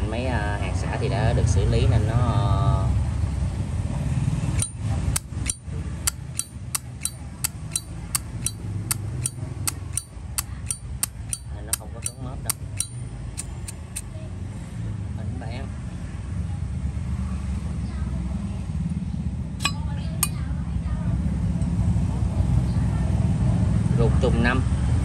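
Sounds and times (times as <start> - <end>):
lighter lid clicking open and shut: 4.6 - 14.0.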